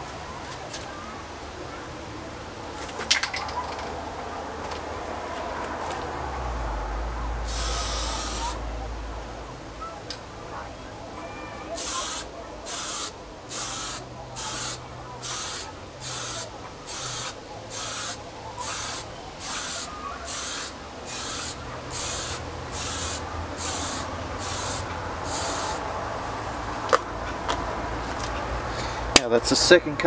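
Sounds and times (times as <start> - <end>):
spray can hissing in bursts: 7.5 - 8.6, 11.7 - 25.8.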